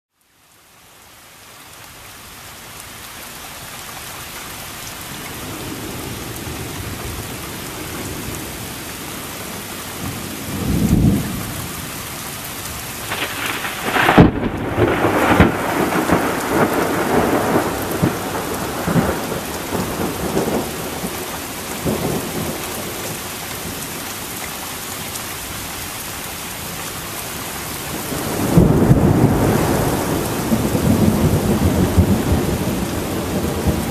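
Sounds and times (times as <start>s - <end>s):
heavy rain: 0.1s - 33.9s
thunder rumbling and cracking: 10.0s - 11.9s, 13.0s - 23.8s, 27.9s - 33.9s.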